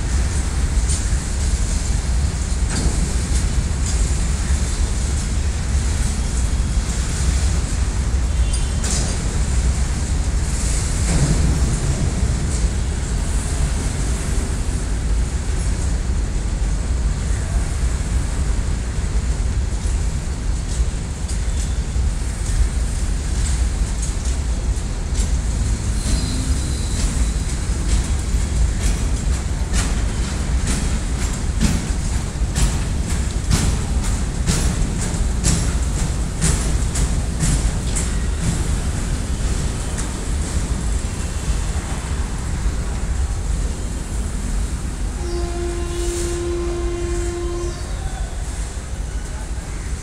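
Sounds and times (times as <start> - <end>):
freight train rumbling past: 0.0 - 50.0
wheels clacking over rail joints: 0.0 - 50.0.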